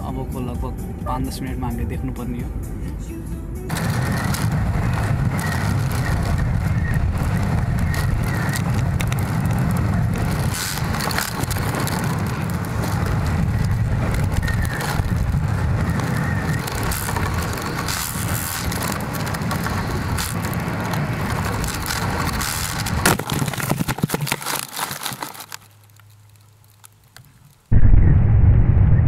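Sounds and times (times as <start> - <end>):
wind buffeting microphone: 3.7 - 23.1
knocks and crunches on grass: 3.7 - 27.7
scattered crackles: 3.7 - 29.0.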